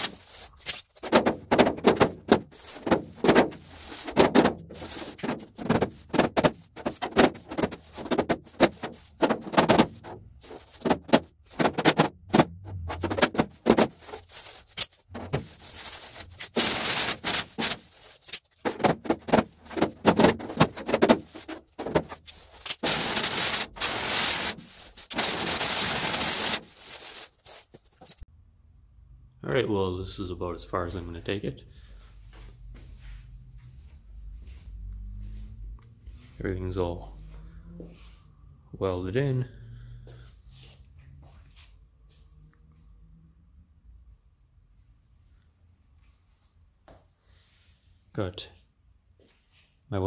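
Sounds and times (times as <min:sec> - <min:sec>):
air sander on sheet steel: 0:21.2 - 0:27.5.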